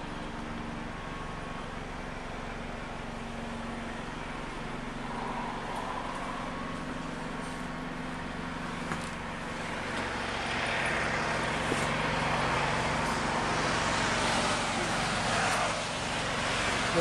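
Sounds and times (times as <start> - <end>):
low vehicle hum: 0.0 - 17.0
traffic hiss: 9.6 - 17.0.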